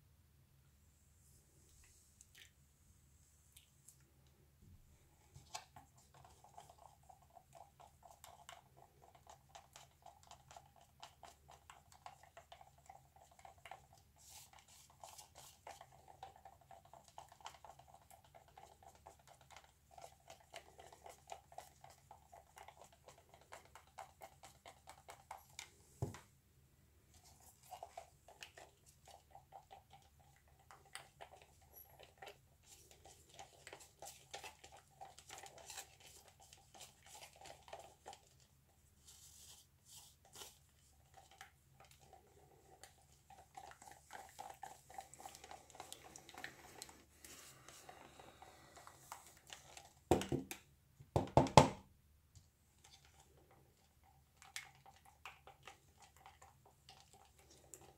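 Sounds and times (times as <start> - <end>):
stick stirring paint in plastic cup: 3.5 - 51.6, 52.4 - 57.9.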